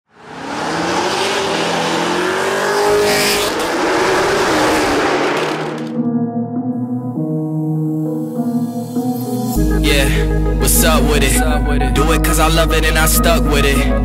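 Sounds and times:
car engine accelerating hard: 0.1s - 6.0s.

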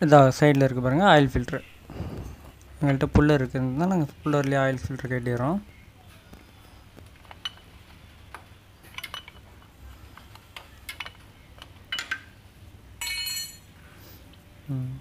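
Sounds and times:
metal hand tools clinking: 13.0s - 13.7s
ringing metallic clink: 13.0s - 13.7s.

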